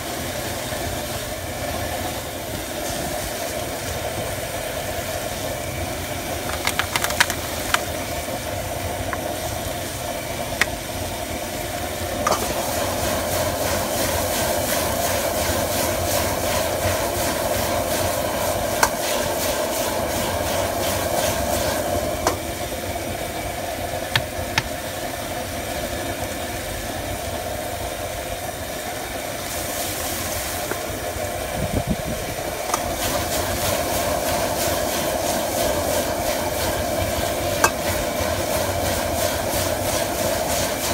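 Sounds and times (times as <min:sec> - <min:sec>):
gas burner roaring: 0:00.0 - 0:40.9
food sizzling in a wok: 0:07.4 - 0:22.9, 0:25.6 - 0:31.5, 0:32.4 - 0:40.9.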